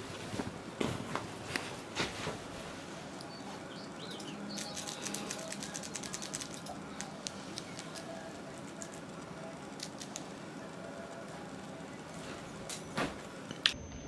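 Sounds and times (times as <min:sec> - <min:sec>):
cat toy clicking and rustling: 0:04.2 - 0:10.4.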